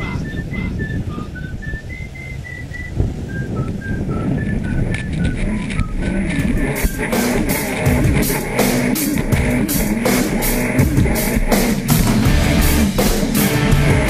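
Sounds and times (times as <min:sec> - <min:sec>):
whistled tune: 0:00.0 - 0:09.2
drum hits: 0:06.4 - 0:14.0
rock music with drums and guitar: 0:06.4 - 0:14.0.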